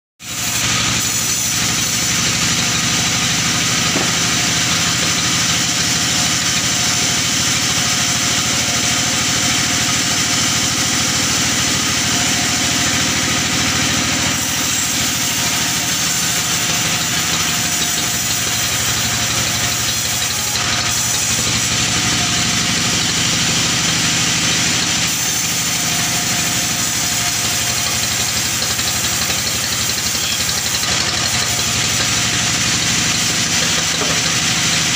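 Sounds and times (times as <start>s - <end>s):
sawmill machine drone: 0.2s - 34.9s
saw blade ripping a log: 0.3s - 7.0s, 14.3s - 34.9s.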